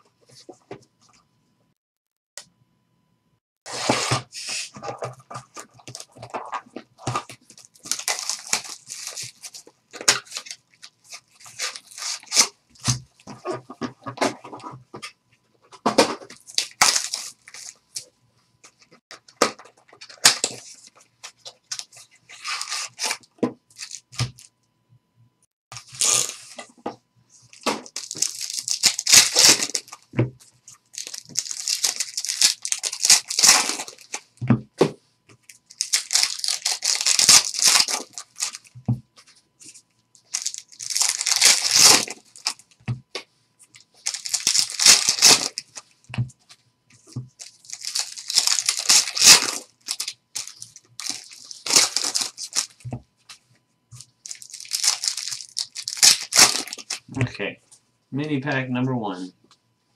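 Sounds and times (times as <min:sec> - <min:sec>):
wrappers ripping and crinkling: 0:05.6 - 0:14.7, 0:16.2 - 0:18.1, 0:19.6 - 0:24.5, 0:25.7 - 0:26.8, 0:27.5 - 0:30.1, 0:30.7 - 0:34.4, 0:35.4 - 0:38.7, 0:40.2 - 0:42.7, 0:44.0 - 0:45.8, 0:47.4 - 0:52.9, 0:54.0 - 0:57.2.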